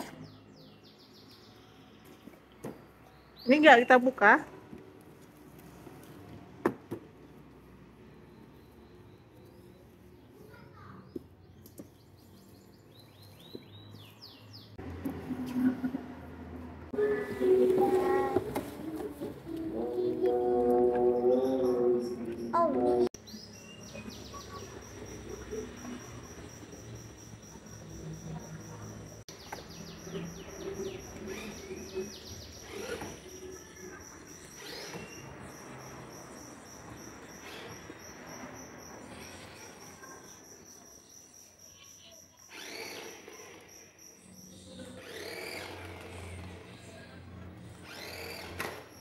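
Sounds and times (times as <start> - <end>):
high pulsing chirp: 19.4 - 39.1
toy car electric motor whirring: 31.1 - 35.3, 42.4 - 44.0, 44.8 - 46.9, 47.7 - 49.0.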